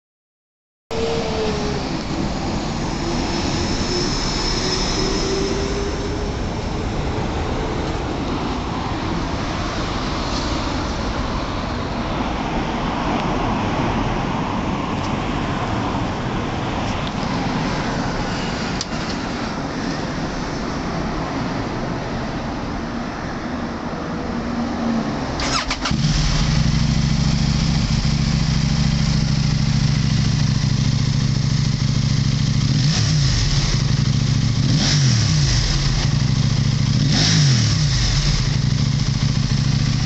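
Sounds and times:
vehicle passing by: 0:00.9 - 0:23.2
street traffic rumble: 0:00.9 - 0:40.0.

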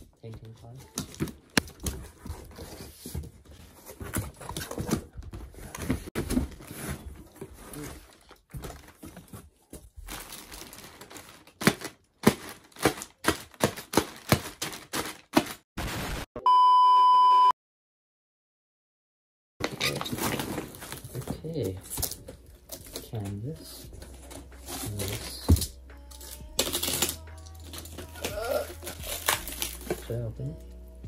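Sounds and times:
plastic packing crinkling: 0:06.2 - 0:16.2, 0:26.2 - 0:30.4
steady test tone beep: 0:16.4 - 0:17.6.

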